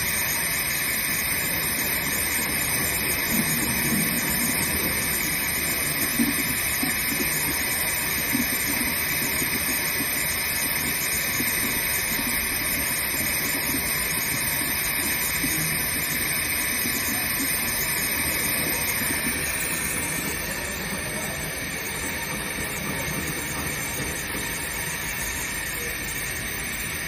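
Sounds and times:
laser cutting machine hissing: 0.0s - 27.0s.

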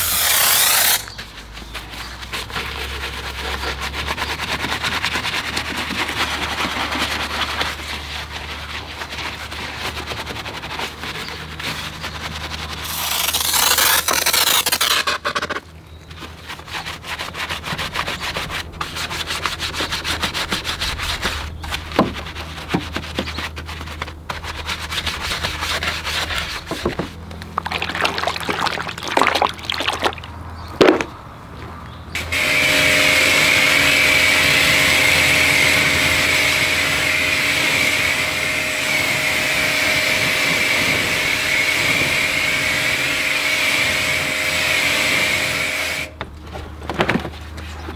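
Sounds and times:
brush scrubbing: 0.0s - 15.2s, 16.1s - 30.3s
pressure washer running: 32.2s - 46.1s.

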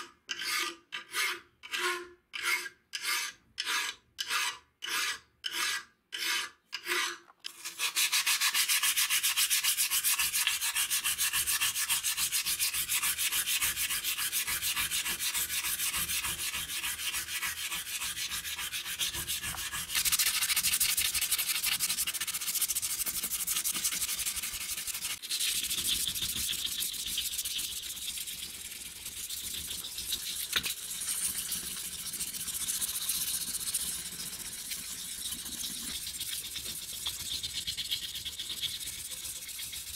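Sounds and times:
sandpaper scraping on metal: 3.0s - 27.9s.

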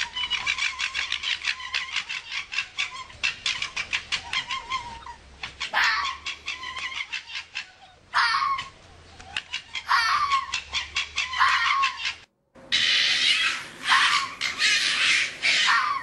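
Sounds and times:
fox chattering: 0.0s - 16.0s
fox harsh cry: 4.2s - 6.2s, 7.1s - 8.7s, 9.3s - 16.0s.

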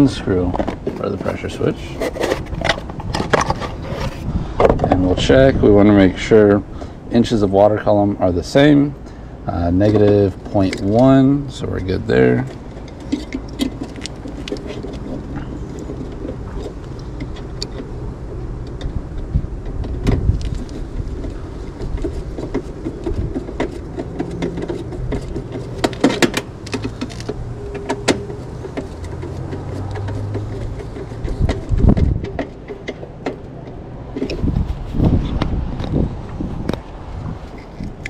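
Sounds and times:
screwdriver and metal parts clicking: 9.8s - 17.9s, 18.7s - 34.5s.

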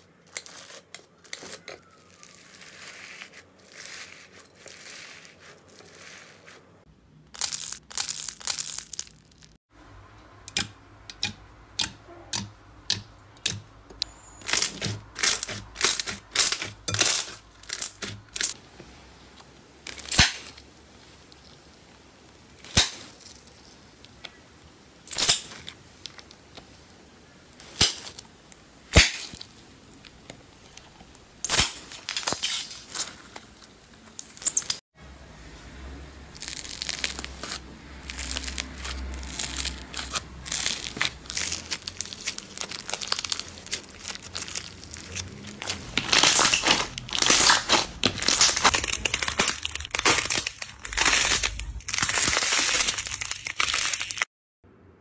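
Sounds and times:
jelly cubes squishing: 0.0s - 9.6s, 10.5s - 34.8s, 36.3s - 54.3s
foam bead slime crackling: 0.0s - 9.7s, 12.3s - 18.6s, 36.3s - 54.3s.

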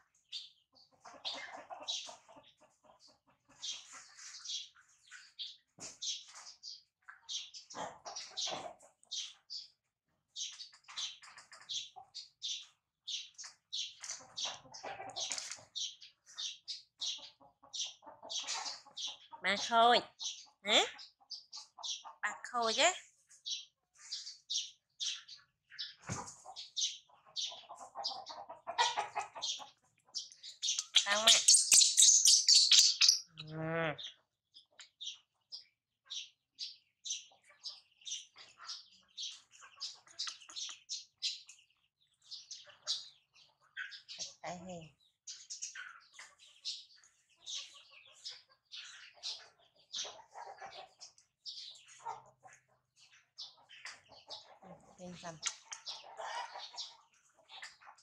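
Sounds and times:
animal chirps and squeaks: 10.4s - 35.3s, 37.2s - 41.6s, 42.4s - 58.0s
baby monkey squeaking: 30.7s - 33.5s.

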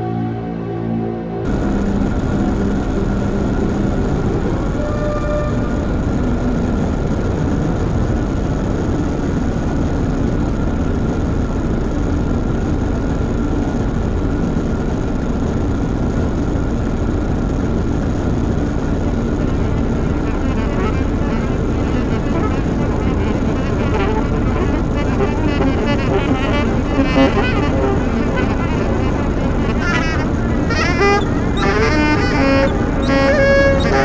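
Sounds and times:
faint high synth tones: 0.0s - 10.3s, 18.7s - 34.0s
low noise drone: 0.0s - 34.0s.

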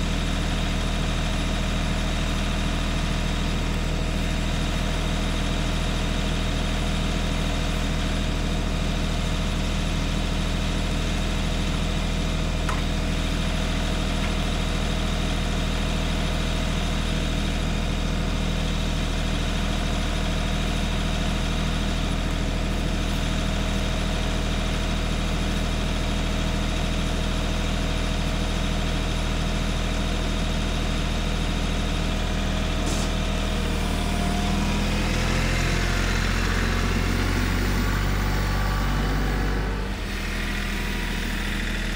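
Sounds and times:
tractor engine idling: 0.0s - 41.9s.

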